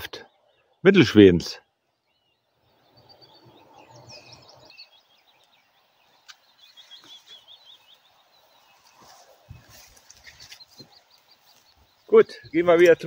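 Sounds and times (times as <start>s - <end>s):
faint songbirds chirping and trilling: 0.0s - 13.0s
footsteps in grass: 5.4s - 13.0s
rustling through grass: 6.2s - 13.0s.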